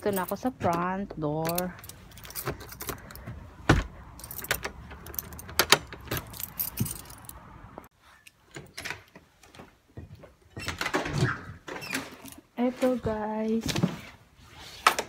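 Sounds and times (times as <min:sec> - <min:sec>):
keys jangling and clicking: 0:00.0 - 0:00.6, 0:01.4 - 0:03.3, 0:04.1 - 0:07.5.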